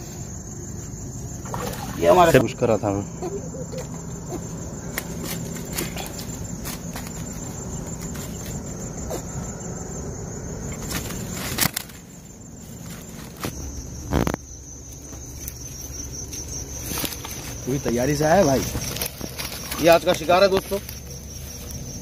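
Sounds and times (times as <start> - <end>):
fish net rustling on dry grass: 15.0 - 17.8, 18.4 - 22.0.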